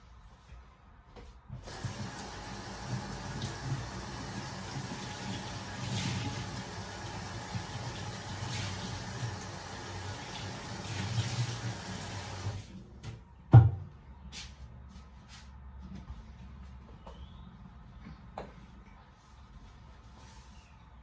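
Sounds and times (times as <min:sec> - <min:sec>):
water running into sink: 0:01.6 - 0:12.6.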